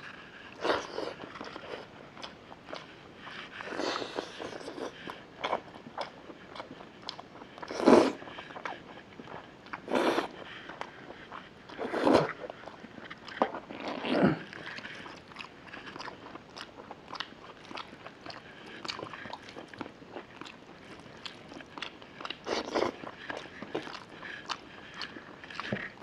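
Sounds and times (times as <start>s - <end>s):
wet chewing and lip smacks: 10.7s - 26.0s.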